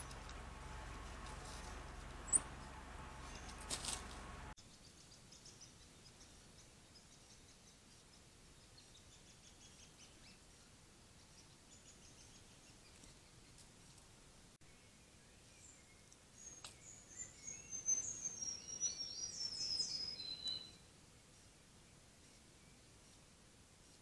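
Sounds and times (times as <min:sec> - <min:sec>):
songbird calls: 0:00.0 - 0:08.2, 0:14.7 - 0:20.9
sharp chirp: 0:02.2 - 0:03.6.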